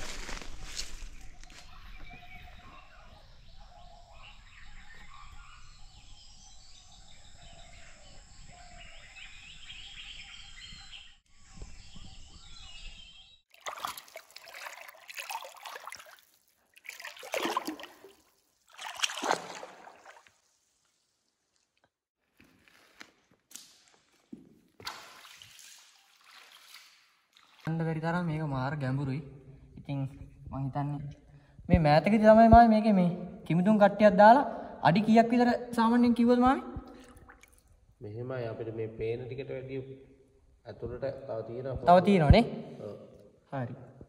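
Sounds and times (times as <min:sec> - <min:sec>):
birds calling: 0:00.0 - 0:13.4.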